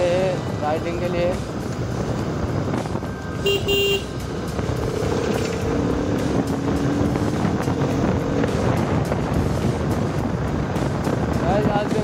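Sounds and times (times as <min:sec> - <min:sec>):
wind and road noise: 0:00.0 - 0:12.0
short horn beeps: 0:03.4 - 0:04.1.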